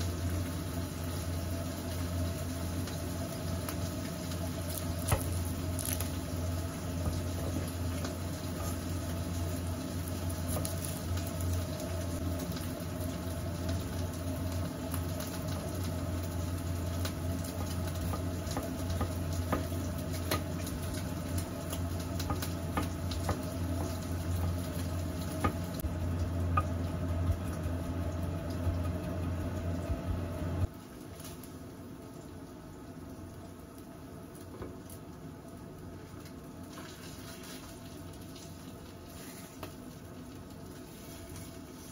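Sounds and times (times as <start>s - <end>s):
steady low hum: 0.0s - 30.8s.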